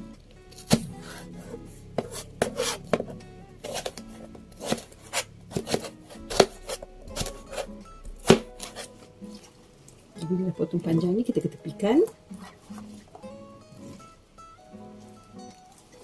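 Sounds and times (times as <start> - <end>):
knife chopping on cutting board: 0.6 - 4.0, 4.6 - 9.0.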